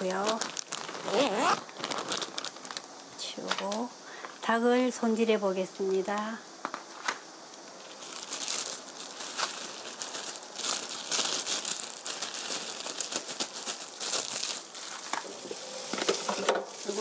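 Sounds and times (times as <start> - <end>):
plastic glove crinkling: 0.0 - 3.9, 7.7 - 17.0.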